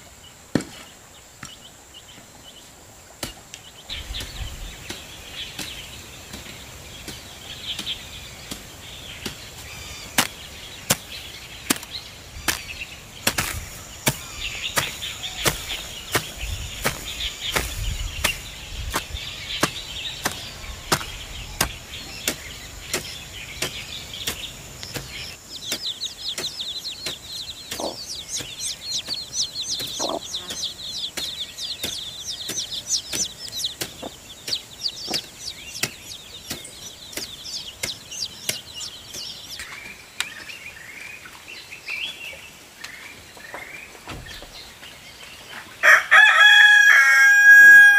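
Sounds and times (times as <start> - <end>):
small birds chirping: 0.0 - 47.9
chicks peeping: 0.2 - 47.9
hoe chopping into soil: 0.5 - 1.6, 4.1 - 40.4
hen clucking: 23.6 - 39.8.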